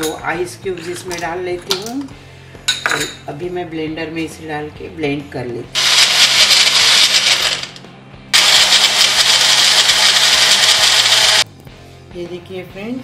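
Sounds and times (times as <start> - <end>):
blender running: 5.8 - 7.8, 8.4 - 11.4.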